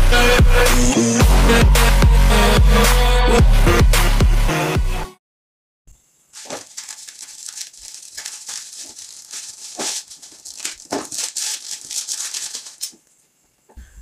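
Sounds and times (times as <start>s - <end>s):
bubble wrap crinkling: 6.4s - 13.1s.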